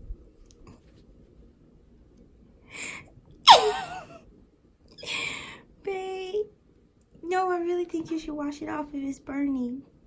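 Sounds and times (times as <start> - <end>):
person sneezing: 3.5 - 4.0.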